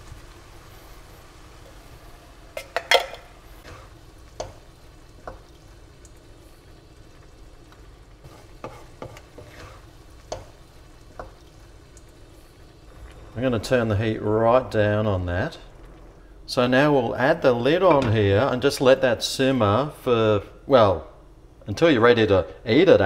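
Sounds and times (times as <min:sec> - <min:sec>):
low sizzle: 0:00.0 - 0:23.0
wooden spoon knocking on pan: 0:08.6 - 0:09.6.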